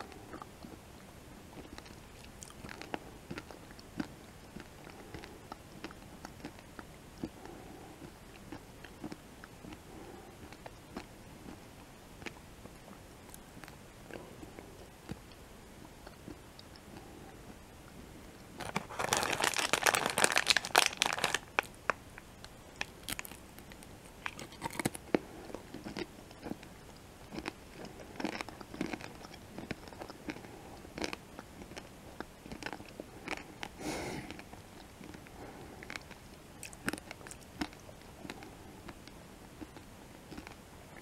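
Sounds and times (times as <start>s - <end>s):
crunching and chewing candy: 0.0s - 41.0s.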